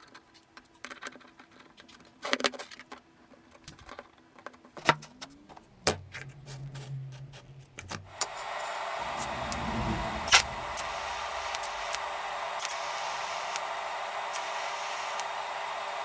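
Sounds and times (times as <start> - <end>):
welding torch hissing: 8.2 - 16.0.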